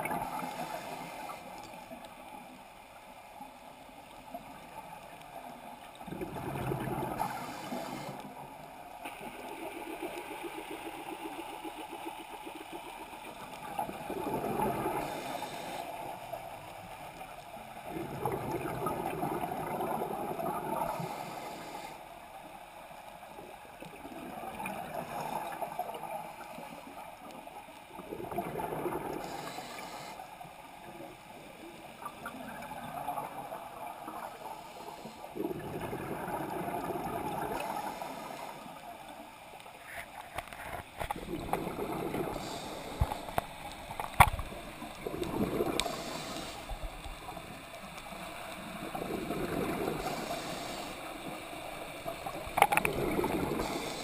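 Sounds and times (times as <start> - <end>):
exhaled bubbles gurgling: 6.0 - 16.7, 17.6 - 21.8, 23.7 - 26.6, 27.9 - 30.1, 31.8 - 38.7, 41.0 - 54.0
regulator inhalation hiss: 7.2 - 8.4, 14.8 - 16.2, 20.8 - 22.0, 29.2 - 30.3, 37.6 - 38.8, 42.0 - 43.6, 45.5 - 47.0, 49.8 - 51.4, 53.3 - 54.0.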